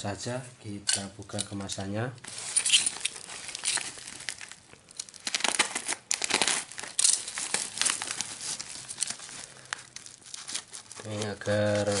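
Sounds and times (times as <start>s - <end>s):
plastic bag crinkling: 2.3s - 12.0s.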